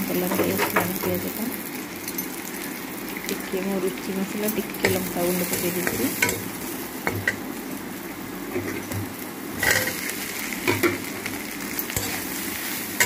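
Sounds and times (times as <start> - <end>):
food frying in oil: 0.0 - 13.0.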